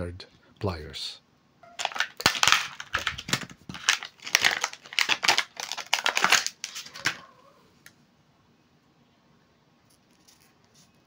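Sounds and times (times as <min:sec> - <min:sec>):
plastic packaging crackling: 0:01.8 - 0:07.2.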